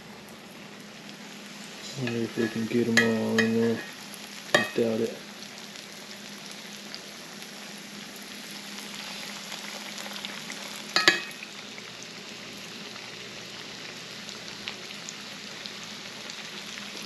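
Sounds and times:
fish sizzling in oil: 0.0 - 17.0
metal tongs clinking: 2.0 - 3.9, 4.6 - 4.8, 11.0 - 11.4.

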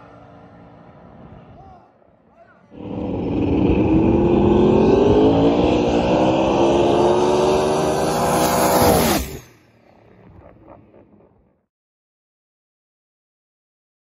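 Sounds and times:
race car engine at full throttle: 2.7 - 11.4.

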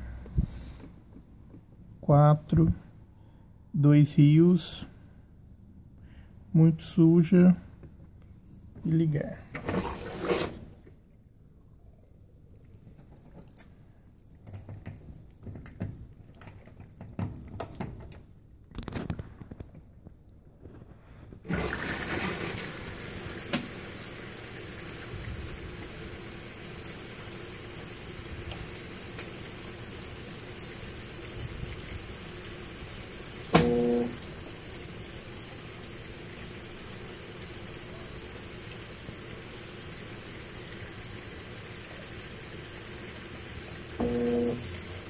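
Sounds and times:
washing machine motor hum: 21.4 - 45.0
water running into washing machine: 21.4 - 45.0.

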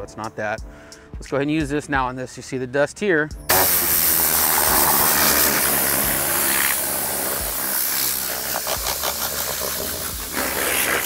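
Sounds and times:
compressed air blasting: 3.5 - 11.0.

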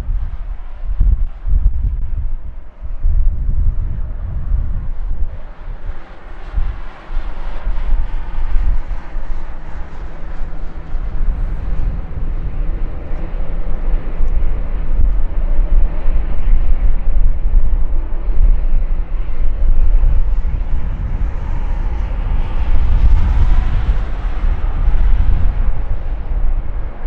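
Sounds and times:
jet engines rumbling and whining: 0.0 - 27.0.

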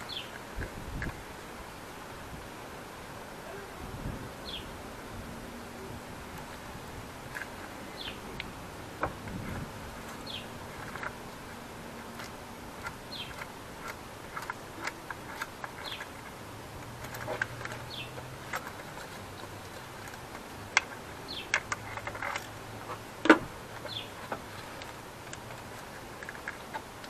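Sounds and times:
plastic and metal parts clicking: 8.3 - 11.3, 12.0 - 27.0.

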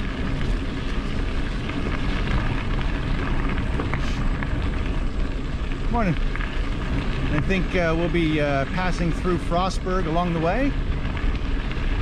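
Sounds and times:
bicycle tyre noise: 0.0 - 12.0
wind buffeting microphone: 0.0 - 12.0.

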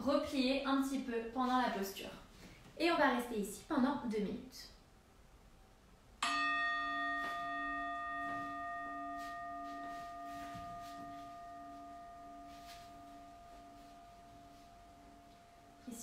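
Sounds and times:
singing bowl ringing: 6.2 - 16.0.

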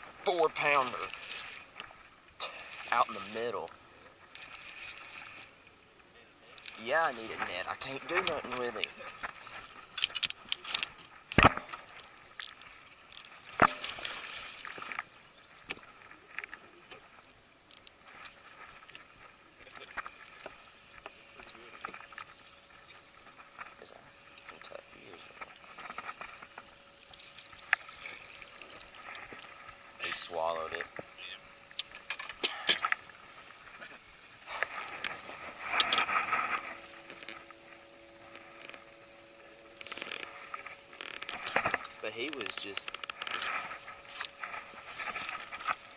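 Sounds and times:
faint steady hum: 0.0 - 45.9
fishing gear rattling: 6.6 - 15.0, 31.7 - 45.9.

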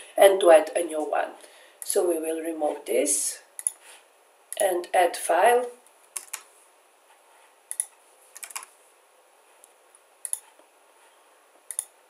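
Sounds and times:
keyboard key presses: 7.7 - 8.7
mouse clicks: 9.6 - 10.5, 11.7 - 11.9.

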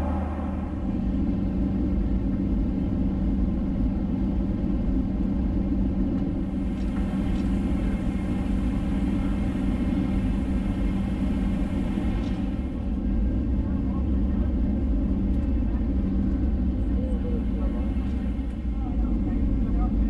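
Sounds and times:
rushing air: 0.0 - 1.8
constant low hum: 0.0 - 20.0
jet engines droning: 0.0 - 20.0.

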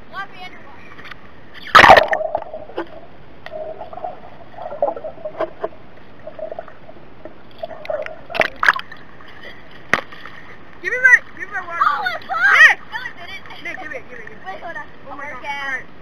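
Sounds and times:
muffled underwater bubbling: 1.6 - 9.0
loud splash into water: 1.7 - 2.6.

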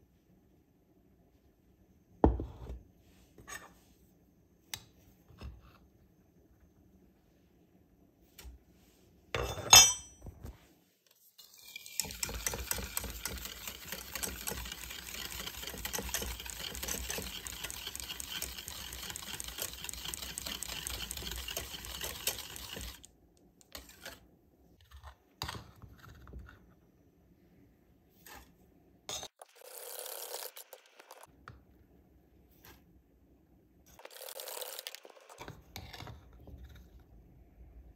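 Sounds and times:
whisk scraping in metal pan: 11.4 - 23.1, 23.7 - 24.2.

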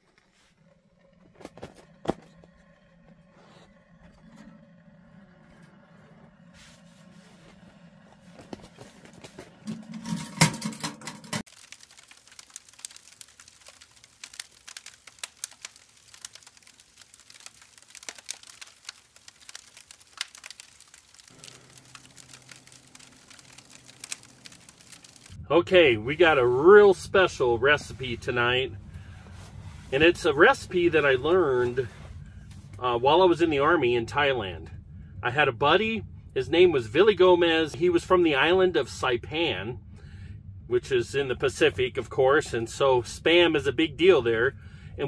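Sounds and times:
low steady hum: 0.0 - 45.0
wood fire crackling in a stove: 0.0 - 45.0
burst of noise: 11.5 - 25.4.

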